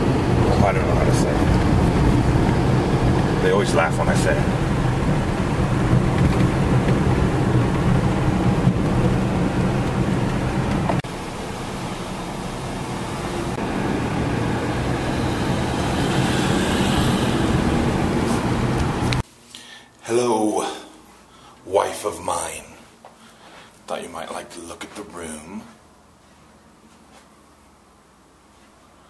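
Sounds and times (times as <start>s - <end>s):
car engine and tyre rumble: 0.0s - 19.2s.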